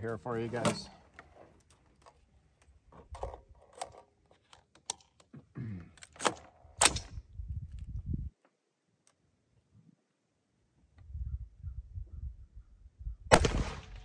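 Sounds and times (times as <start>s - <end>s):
rifle metallic clicks: 6.0s - 7.2s.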